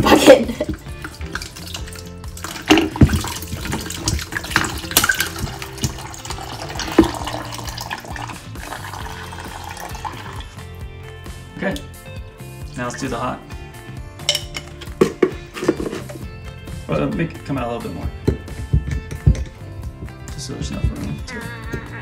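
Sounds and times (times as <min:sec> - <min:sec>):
water trickling into plastic pitcher: 0:00.6 - 0:10.6.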